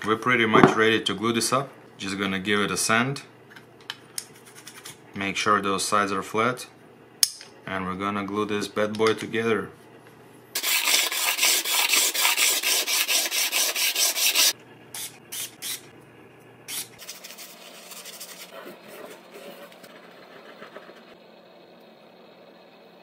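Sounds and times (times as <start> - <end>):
wood rubbed on sandpaper: 10.6 - 14.6, 17.0 - 21.2.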